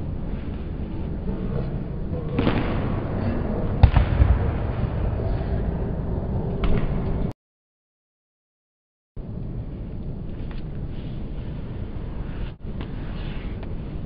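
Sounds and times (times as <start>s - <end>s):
low rumble: 0.0s - 7.3s.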